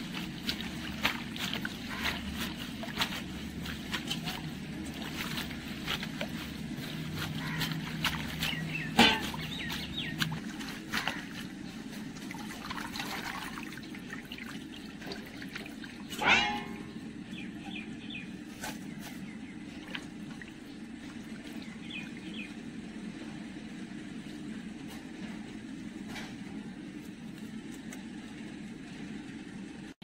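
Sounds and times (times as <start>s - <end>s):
water splashing and trickling: 0.0s - 17.1s, 19.6s - 22.6s
ringing metal bowl: 16.2s - 17.0s.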